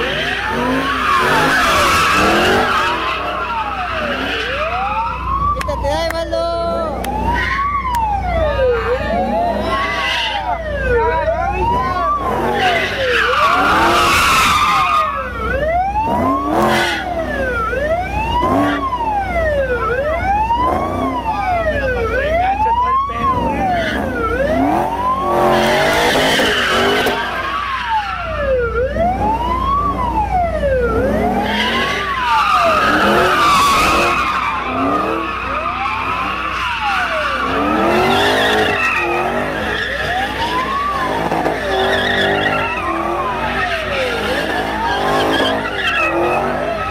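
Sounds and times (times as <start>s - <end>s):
tyres screeching: 0.0s - 4.9s, 11.7s - 15.3s, 31.3s - 46.9s
car engine revving: 0.0s - 46.9s
police siren wailing: 0.0s - 46.9s.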